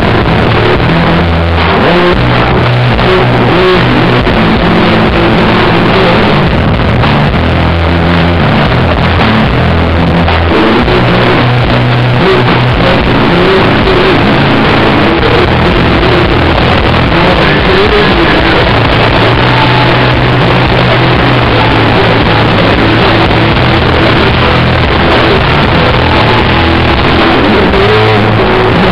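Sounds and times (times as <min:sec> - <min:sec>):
rock band playing live: 0:00.0 - 0:28.9.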